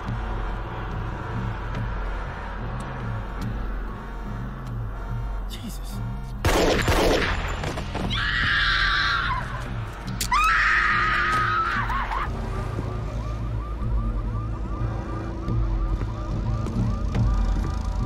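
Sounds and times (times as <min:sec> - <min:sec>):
pistol shots: 0:06.4 - 0:07.7.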